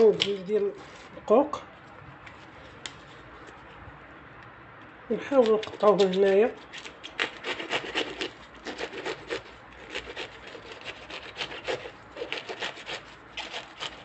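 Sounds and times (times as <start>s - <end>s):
knife cutting artichoke: 5.4s - 14.0s.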